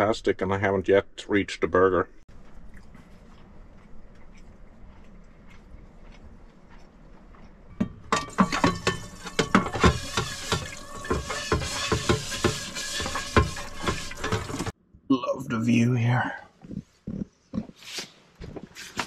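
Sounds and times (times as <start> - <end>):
dishes and cutlery clattering: 7.8 - 14.7.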